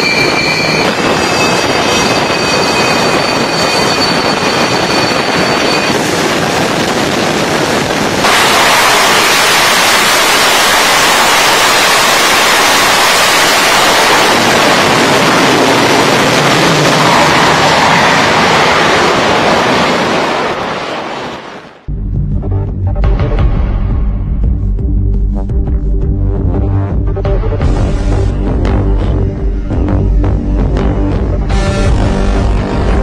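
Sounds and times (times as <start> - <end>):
high jet whine: 0.0 - 21.9, 24.9 - 33.0
jet engine roar: 0.0 - 21.9.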